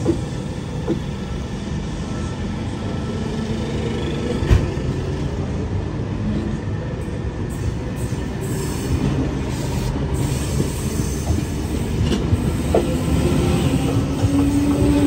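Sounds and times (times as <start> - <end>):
train wheels rumbling on rails: 0.0 - 2.0, 3.5 - 15.0.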